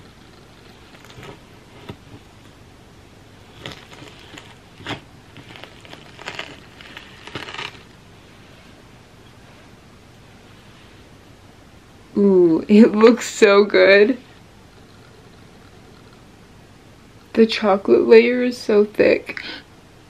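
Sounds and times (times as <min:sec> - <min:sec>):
knife cutting frozen candy bar: 0:00.0 - 0:02.6, 0:03.4 - 0:08.0.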